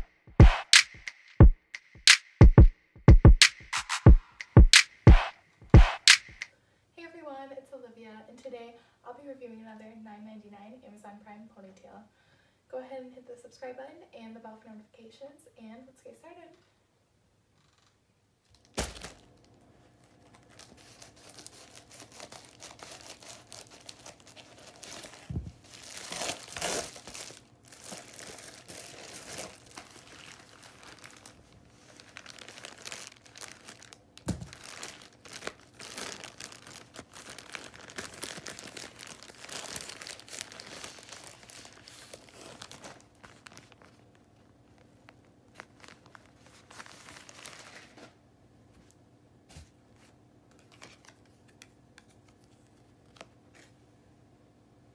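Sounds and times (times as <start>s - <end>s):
plastic packaging crinkling: 18.5s - 48.2s
plastic tearing: 20.1s - 44.0s, 45.5s - 48.1s.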